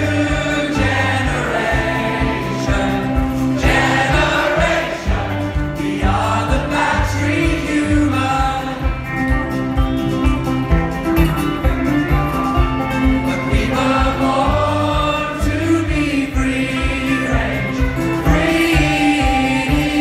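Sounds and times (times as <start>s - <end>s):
people singing together: 0.0s - 9.2s, 13.3s - 20.0s
folk band playing: 0.0s - 20.0s.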